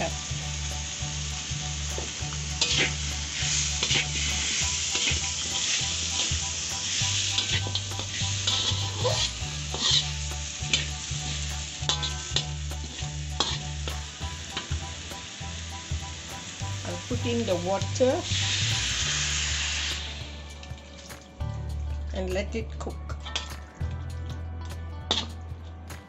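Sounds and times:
food sizzling in oil: 0:00.0 - 0:22.2, 0:25.1 - 0:25.4
metal spatula scraping wok: 0:01.7 - 0:15.1.

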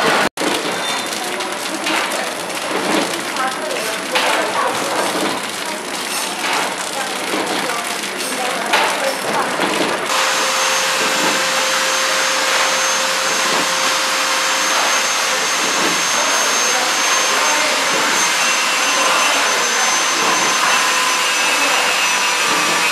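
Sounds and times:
packing machine whir and hiss: 0:09.7 - 0:22.9.

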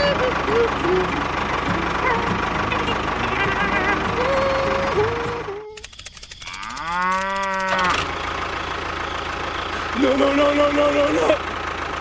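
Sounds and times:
cow mooing: 0:06.4 - 0:08.1.

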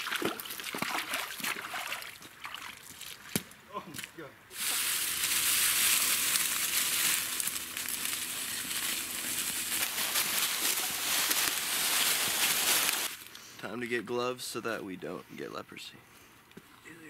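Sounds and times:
footsteps crunching dry leaves: 0:04.5 - 0:13.3.

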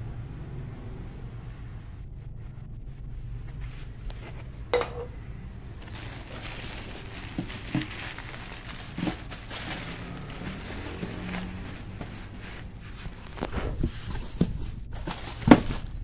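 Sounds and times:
steady low hum: 0:00.0 - 0:16.0
plastic wrapping crinkling: 0:05.8 - 0:16.0.

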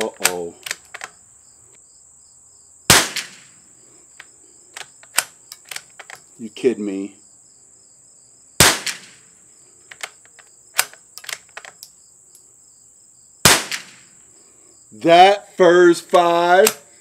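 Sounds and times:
rifle bolt clicks: 0:00.0 - 0:01.2, 0:04.7 - 0:06.3, 0:09.9 - 0:12.4
rifle shots with echo: 0:02.9 - 0:03.6, 0:08.6 - 0:09.2, 0:13.4 - 0:14.1.

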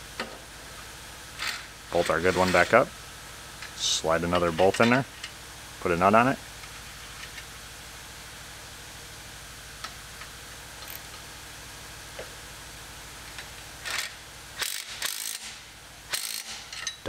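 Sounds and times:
low shop hum: 0:00.0 - 0:17.0
hand ratchet clicking: 0:13.8 - 0:17.0.

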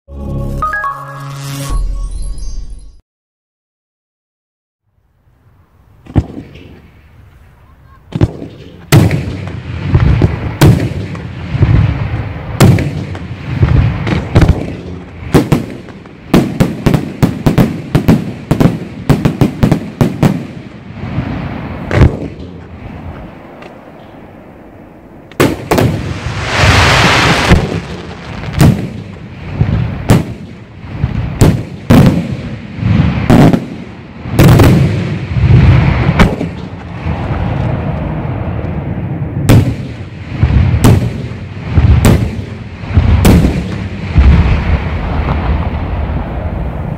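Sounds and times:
hissing crackle: 0:06.4 - 0:31.9
firework cracks: 0:08.1 - 0:24.0, 0:25.3 - 0:38.8, 0:39.4 - 0:46.9.

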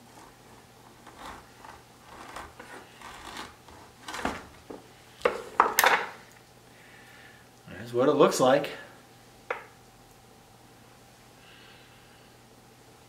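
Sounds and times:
serrated knife sawing through meat: 0:01.0 - 0:04.2.

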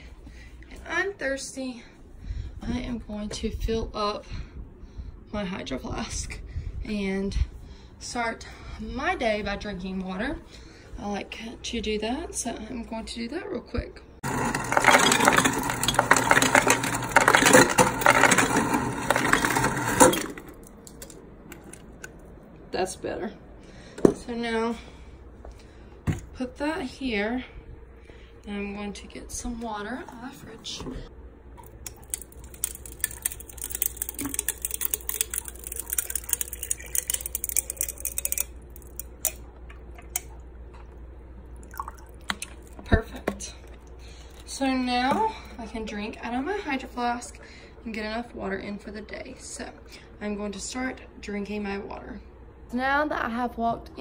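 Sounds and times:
ice dispenser motor humming: 0:14.2 - 0:22.2, 0:31.6 - 0:39.4
crushed ice rattling into bottle: 0:14.3 - 0:21.1, 0:32.0 - 0:39.1.

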